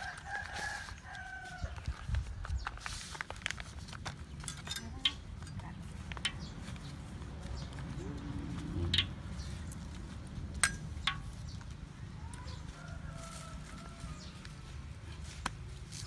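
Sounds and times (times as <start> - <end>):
plastic film rustling: 0.0 - 4.5.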